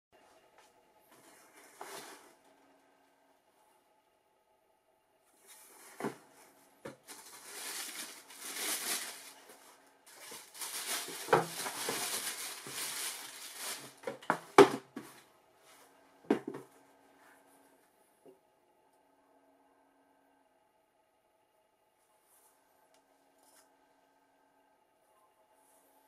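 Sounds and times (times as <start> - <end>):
tissue paper rustling: 5.4 - 15.2.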